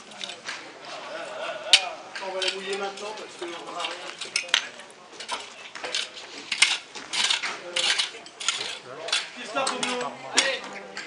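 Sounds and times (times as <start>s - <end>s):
hand tool scraping in wooden tub: 5.2s - 9.9s.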